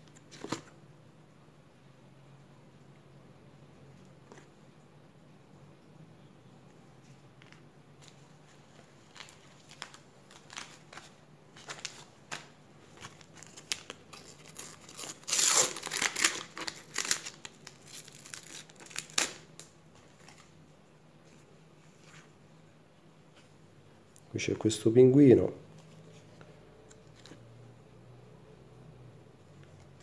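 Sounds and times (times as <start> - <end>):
wrapper crinkling and rustling: 8.0 - 20.5
packet tearing: 9.1 - 19.7.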